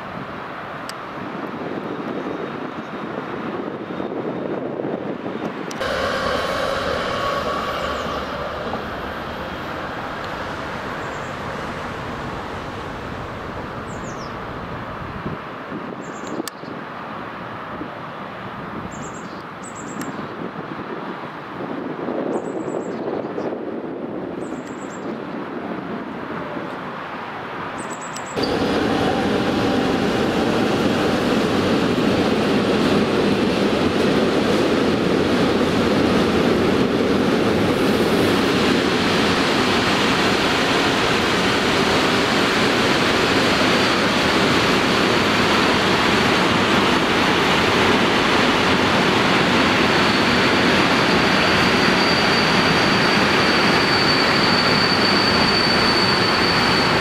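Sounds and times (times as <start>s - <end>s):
train wheels rumbling on rails: 0.0s - 16.5s, 28.2s - 57.0s
high wheel squeal: 5.8s - 14.3s, 28.4s - 30.9s, 49.4s - 57.0s.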